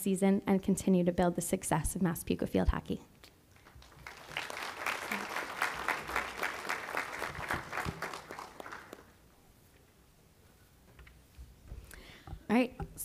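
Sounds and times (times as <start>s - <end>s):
audience applauding: 3.6s - 9.2s.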